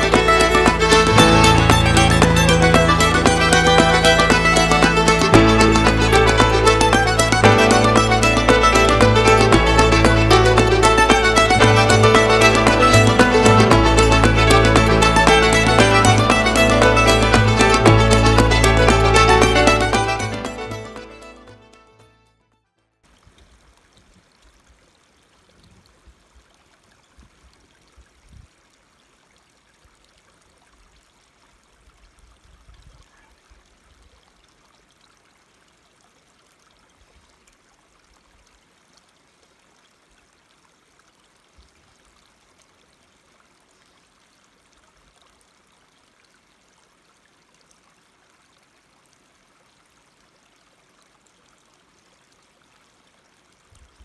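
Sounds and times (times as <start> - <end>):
low bumps: 0.0 - 21.5.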